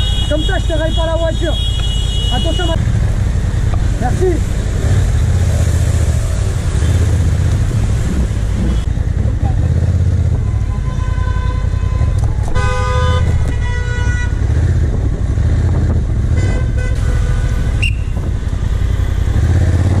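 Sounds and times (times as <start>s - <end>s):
vehicle horns honking: 0.0s - 2.8s, 10.4s - 14.5s, 16.3s - 18.2s
motorcycle engine rumble: 0.0s - 20.0s
road noise: 0.0s - 20.0s.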